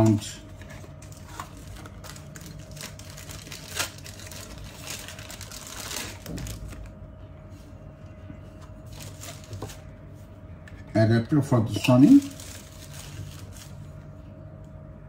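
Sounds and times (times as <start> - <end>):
plastic bag crinkling: 1.0 - 6.9, 8.9 - 9.8, 11.8 - 13.9.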